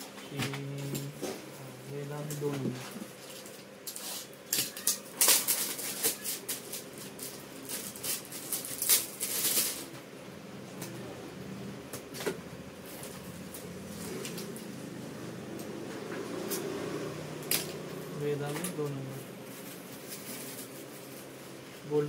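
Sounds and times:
plastic packets crinkling: 4.6 - 9.9.

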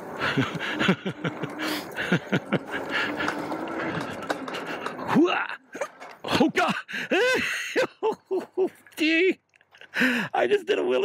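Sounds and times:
wind and tyre noise: 0.0 - 5.3
bike rattling over bumps: 0.0 - 7.2.

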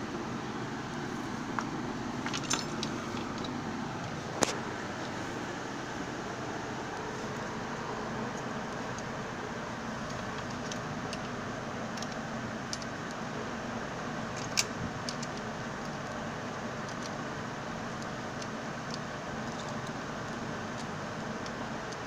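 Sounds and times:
steady background hiss: 0.0 - 22.0
plastic and metal parts clicking: 14.4 - 15.4.

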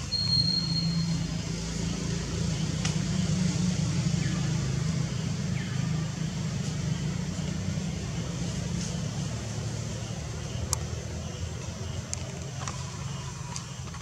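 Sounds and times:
vehicle engine rumble: 0.0 - 14.0
thin high whistle: 0.1 - 1.2.

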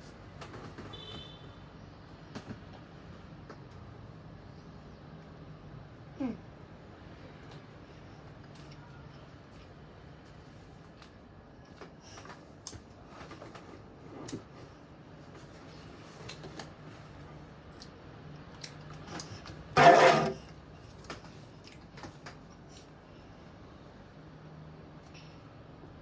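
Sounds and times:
rustling and clicks of eating bread: 7.2 - 19.8, 20.4 - 23.3.

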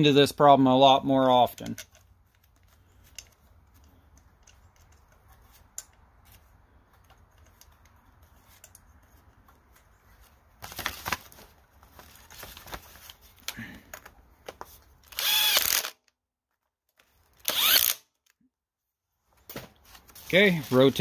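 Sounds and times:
paper rustling: 5.0 - 13.5, 19.4 - 21.0.

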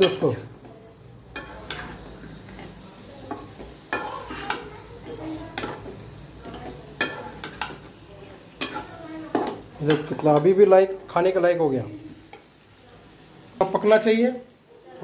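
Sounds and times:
low sizzle: 0.0 - 15.0
spatula scraping metal wok: 1.2 - 10.5.

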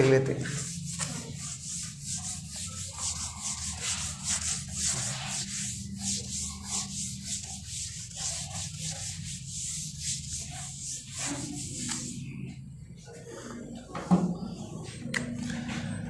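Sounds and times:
duster scrubbing whiteboard: 0.0 - 12.6.

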